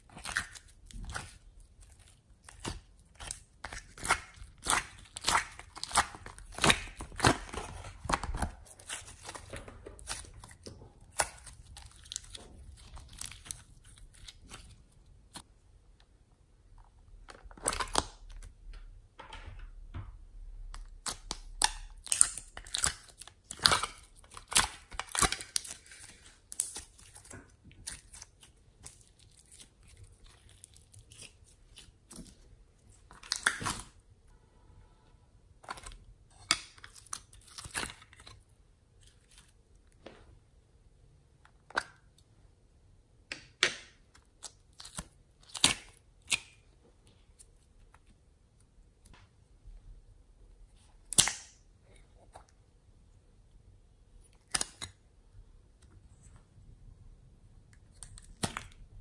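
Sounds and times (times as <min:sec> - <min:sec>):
slime squelching and popping: 0:00.0 - 0:15.5, 0:20.7 - 0:32.4.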